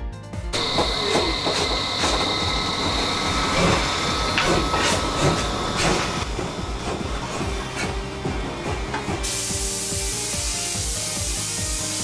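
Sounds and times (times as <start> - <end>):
locomotive chuffs and clanks: 0.6 - 9.4
steam locomotive hissing steam: 0.6 - 12.0.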